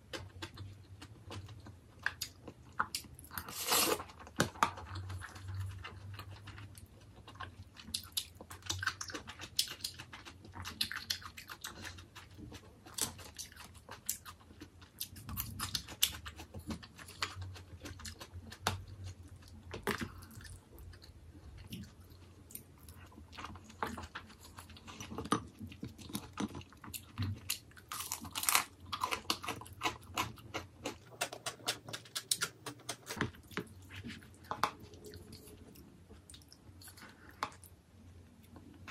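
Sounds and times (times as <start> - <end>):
chewing and crunching: 0.0 - 38.9.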